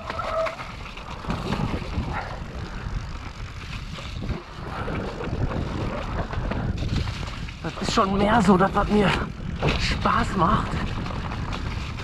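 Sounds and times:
bike tyres on dirt trail: 0.0s - 12.0s
wind rumble on microphone: 0.0s - 12.0s.

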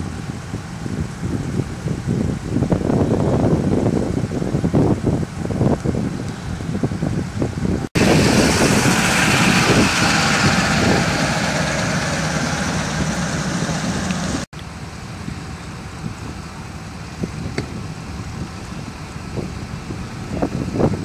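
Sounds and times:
loud hissing rush: 8.0s - 14.5s
vehicle engines idling: 8.0s - 20.6s.

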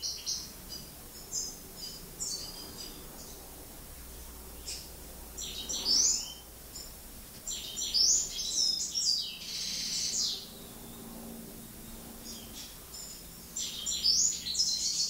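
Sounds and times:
goldfinch twittering song: 0.0s - 3.4s, 4.6s - 6.9s, 7.5s - 11.0s, 12.2s - 15.0s.

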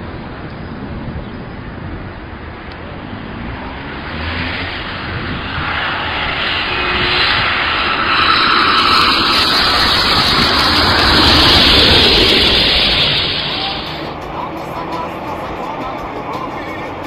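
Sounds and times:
jet airliner flying overhead: 0.0s - 17.0s
faint whine: 4.7s - 14.2s.

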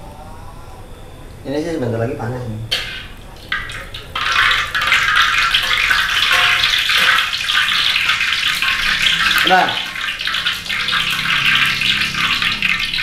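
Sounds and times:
fish sizzling in hot oil: 2.7s - 13.0s.

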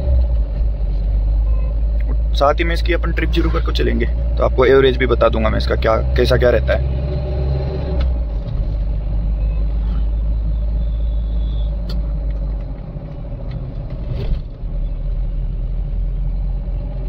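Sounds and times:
engine and road noise rumble: 0.0s - 17.0s.

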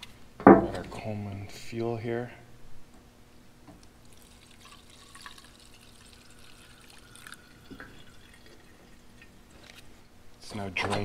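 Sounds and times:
liquid trickling and dripping: 4.0s - 9.9s.

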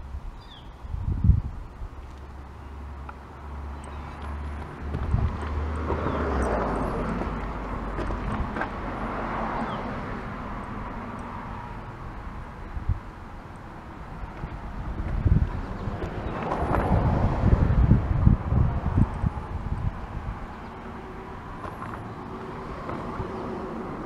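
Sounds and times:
vehicle passing by: 2.8s - 12.0s, 14.4s - 24.0s.

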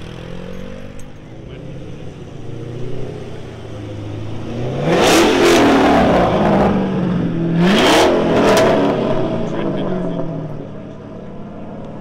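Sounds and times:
car engine revving: 0.0s - 12.0s
loud exhaust: 2.5s - 10.8s.

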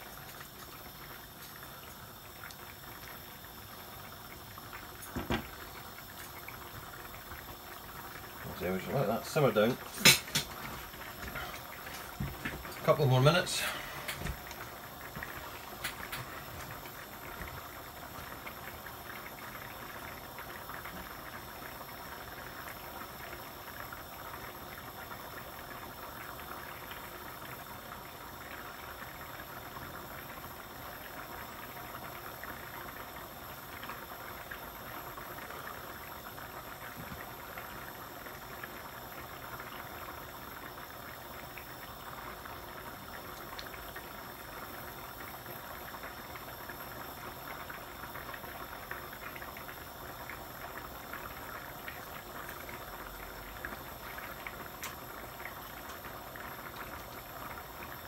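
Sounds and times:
sauce simmering in frying pan: 0.0s - 58.0s.

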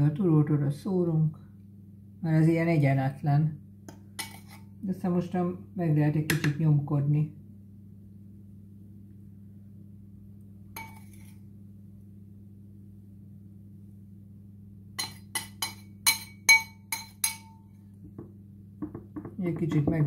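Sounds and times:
metal spoon clinking glass bowl: 10.8s - 11.4s, 15.0s - 17.7s.

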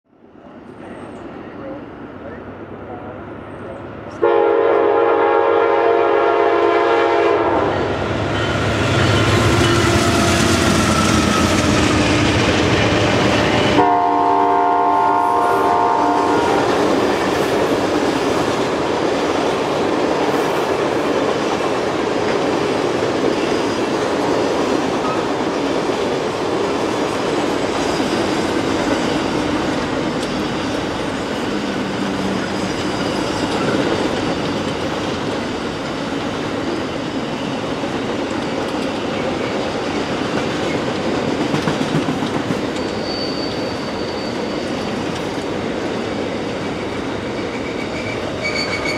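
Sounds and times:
train passing with clickety-clack: 0.3s - 48.9s
locomotive horn blasts: 4.2s - 7.9s, 13.8s - 16.7s.

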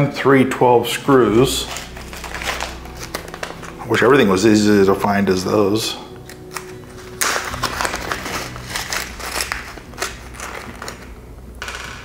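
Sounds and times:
plastic bags crinkling and rustling: 1.6s - 4.4s, 6.1s - 11.2s.

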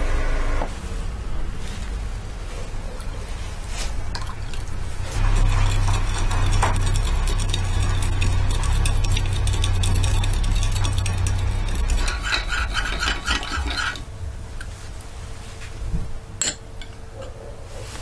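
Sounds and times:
spoon scraping glass bowl: 5.1s - 14.0s.

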